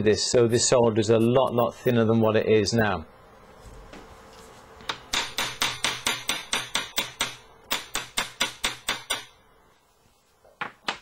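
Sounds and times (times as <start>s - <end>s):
hammer striking metal: 5.1s - 9.3s.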